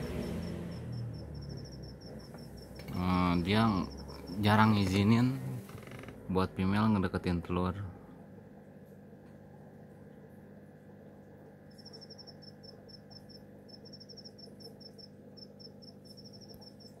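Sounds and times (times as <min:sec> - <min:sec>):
insect chirping: 0:00.0 - 0:05.2, 0:11.7 - 0:17.0
aquarium equipment hum: 0:00.0 - 0:17.0.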